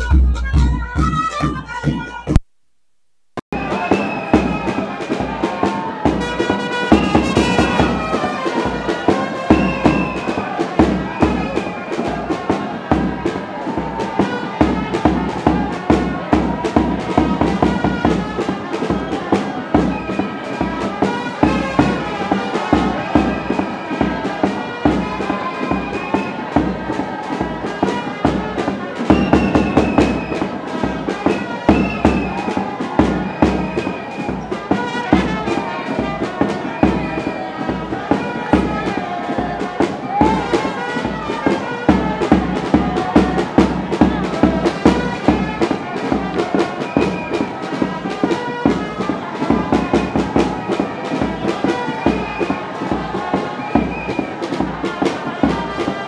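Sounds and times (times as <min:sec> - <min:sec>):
music with steady beat: 0:00.0 - 0:56.0.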